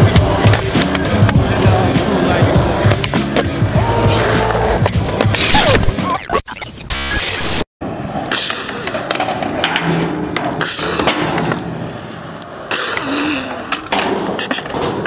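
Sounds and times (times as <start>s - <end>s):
skateboard wheels rolling on concrete: 0.0s - 6.0s, 7.8s - 15.0s
skateboard clacks and knocks: 8.6s - 11.7s.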